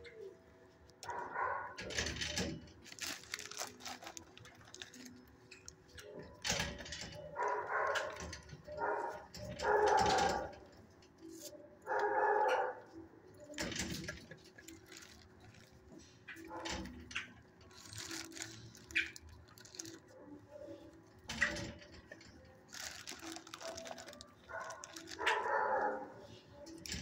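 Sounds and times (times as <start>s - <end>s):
dogs barking: 1.0s - 2.1s, 7.0s - 10.8s, 11.7s - 13.0s, 16.3s - 17.4s, 22.8s - 26.4s.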